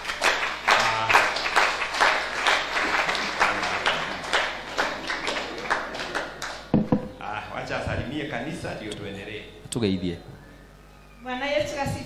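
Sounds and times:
congregation clapping: 0.0s - 6.8s.

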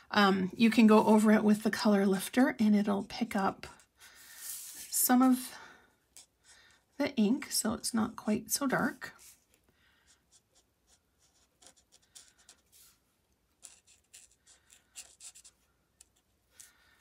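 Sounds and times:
marker scratching on cardstock: 10.1s - 13.0s, 13.6s - 16.2s.

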